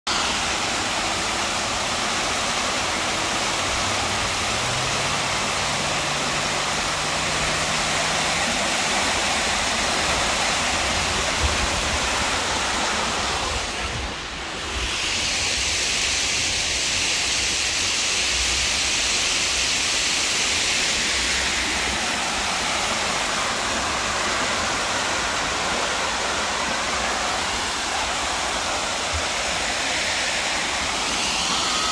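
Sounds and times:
waterfall pouring into pool: 0.1 - 31.9.

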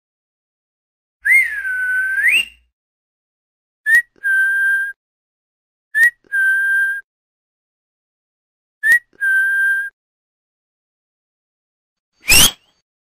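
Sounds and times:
two-part whistle call: 1.2 - 2.7, 12.2 - 12.7.

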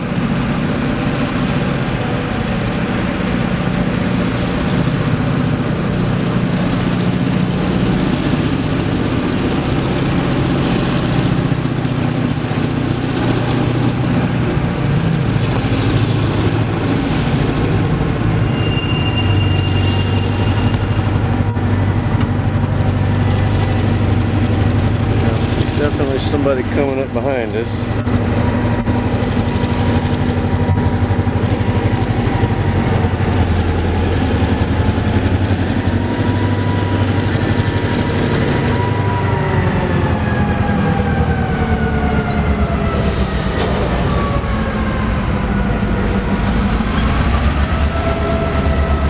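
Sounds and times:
locomotive diesel engines droning: 0.0 - 49.0
thin high squeal: 18.5 - 21.0.

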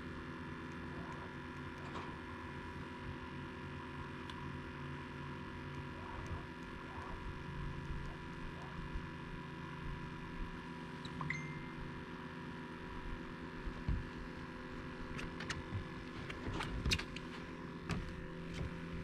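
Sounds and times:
steady electrical hum: 0.0 - 19.0
high beep: 11.0 - 12.0.

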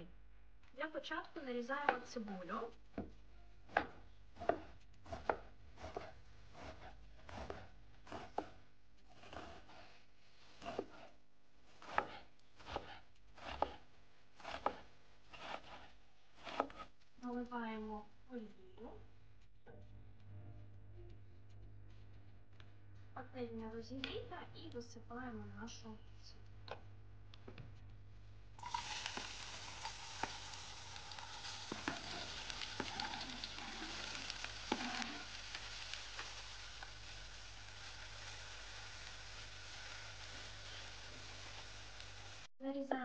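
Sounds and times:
knife slicing onion on board: 3.7 - 9.9, 10.5 - 16.9, 31.2 - 35.3
onion sizzling in hot oil: 28.6 - 42.5.

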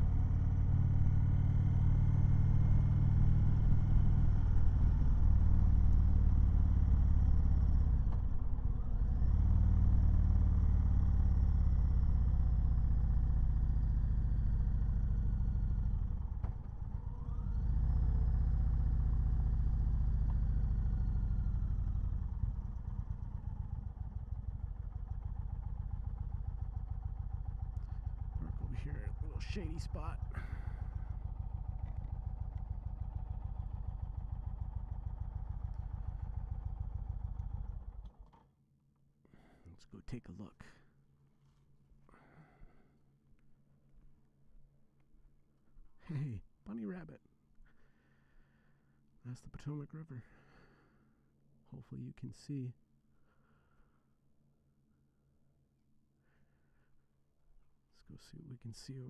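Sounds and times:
motorcycle engine running: 0.0 - 38.4.

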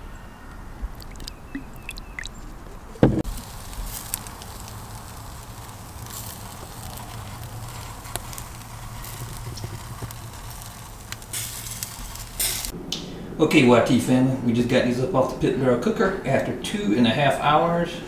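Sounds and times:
charcoal fire sizzling and crackling: 0.9 - 12.8
fire popping: 0.9 - 12.8
sharp thump: 3.0 - 3.3.

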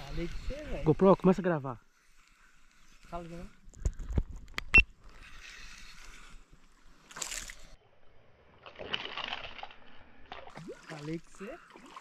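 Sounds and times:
water splashing and sloshing: 5.0 - 12.0.

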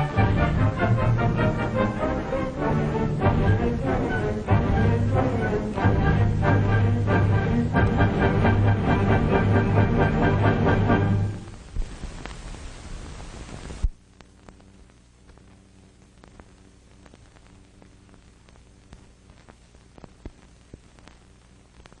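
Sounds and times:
faint low hum: 0.0 - 22.0
film soundtrack hiss: 0.0 - 22.0
clicks and crackles: 11.5 - 22.0.

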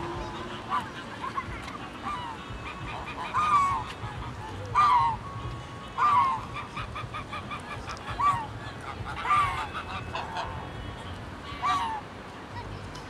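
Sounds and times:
geese honking: 0.0 - 10.8, 11.5 - 12.0.

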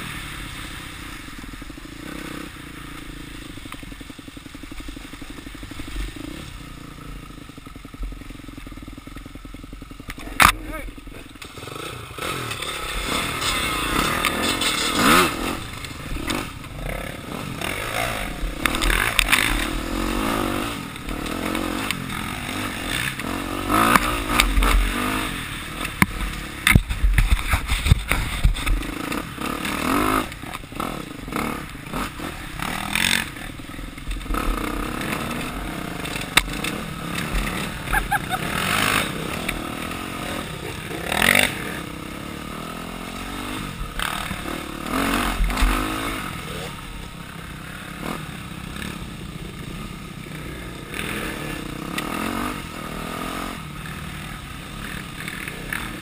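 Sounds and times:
dirt bike engine revving: 0.0 - 56.0
bike clattering over bumps: 32.6 - 39.9.

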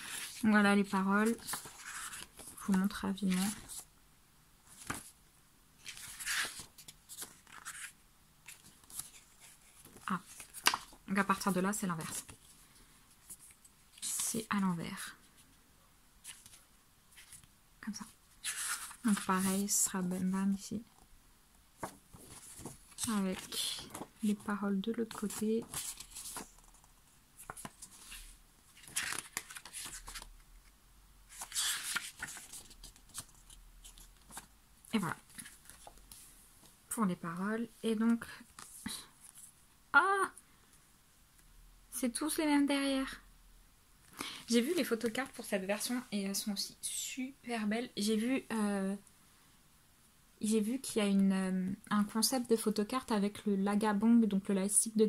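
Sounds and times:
paper pages flipping: 1.2 - 3.9, 4.7 - 5.1, 5.8 - 12.5, 18.4 - 20.0, 21.8 - 30.4, 31.3 - 36.3, 38.5 - 39.5.

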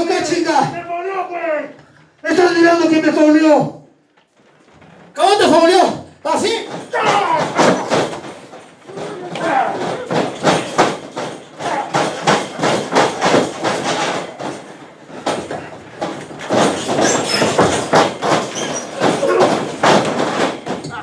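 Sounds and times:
bodies thudding on ring mat: 6.6 - 21.0.

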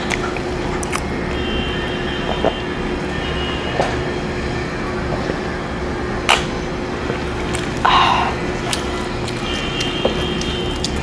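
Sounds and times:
faint hum: 0.0 - 11.0
steady rumbling background: 0.0 - 11.0
sipping and gulping: 7.2 - 11.0.

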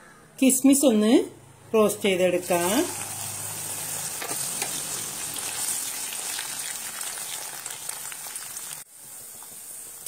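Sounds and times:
oil sizzling while deep-frying: 2.4 - 10.0.

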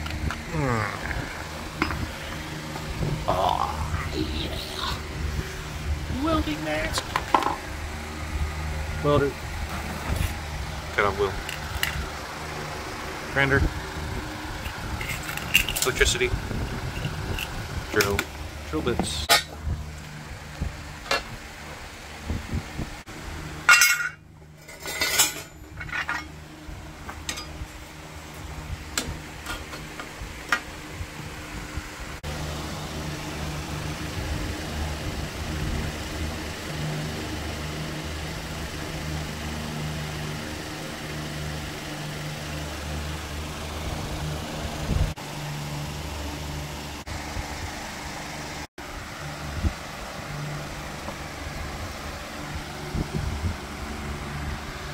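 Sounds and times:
low mechanical hum: 0.0 - 54.9
metal parts clinking: 14.7 - 16.1, 23.7 - 26.3.

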